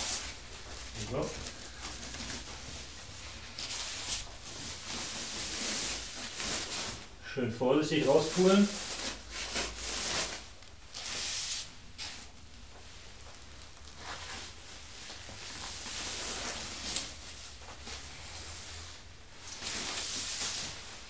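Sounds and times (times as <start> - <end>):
plastic wrapping rustling: 0.0 - 21.0.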